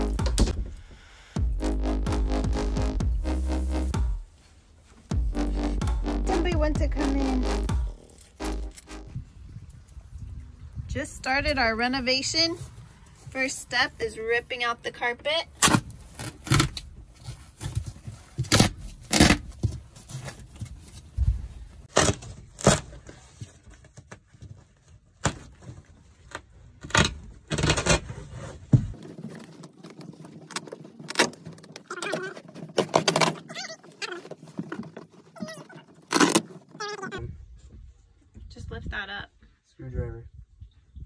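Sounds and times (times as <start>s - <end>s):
carpet being torn up: 21.9s - 23.0s.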